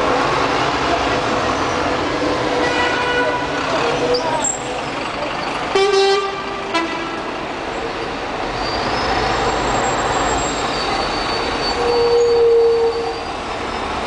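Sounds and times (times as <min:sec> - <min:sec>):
bus and car engines: 0:00.0 - 0:14.0
vehicle horn honking: 0:02.6 - 0:03.6, 0:05.7 - 0:07.3.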